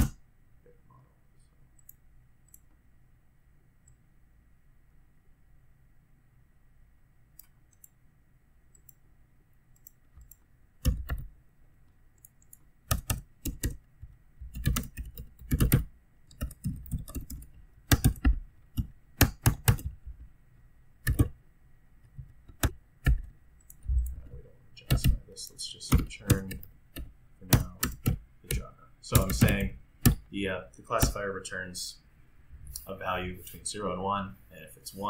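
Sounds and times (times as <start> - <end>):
typing on computer keyboard: 9.8 - 11.3, 12.2 - 13.8, 14.5 - 20.0, 21.0 - 21.4, 24.8 - 25.2, 25.9 - 30.2.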